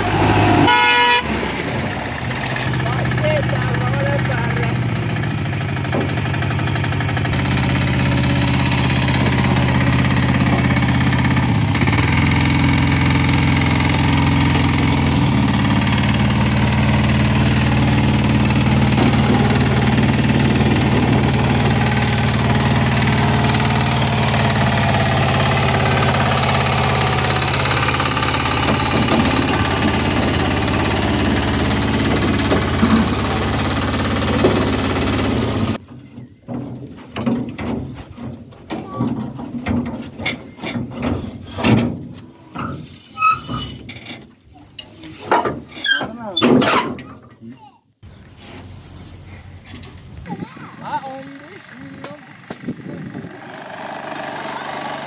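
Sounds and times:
small engine running: 0.0 - 35.8, 49.4 - 55.0.

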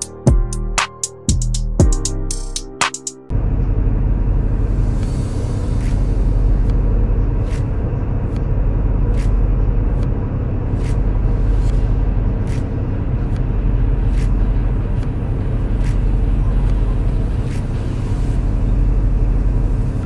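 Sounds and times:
diesel truck engine rumbling: 3.3 - 20.0.

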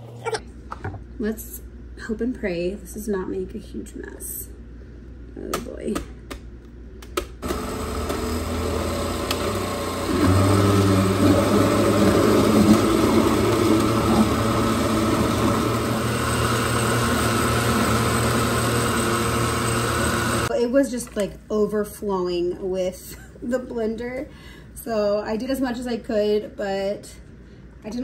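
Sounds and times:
blender motor running: 7.4 - 20.5.

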